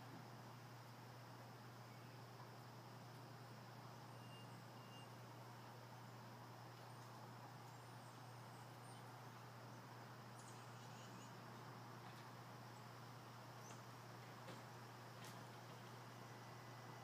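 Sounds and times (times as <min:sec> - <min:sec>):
steady low hum: 0:00.0 - 0:17.0
faint high chirps: 0:03.9 - 0:05.7.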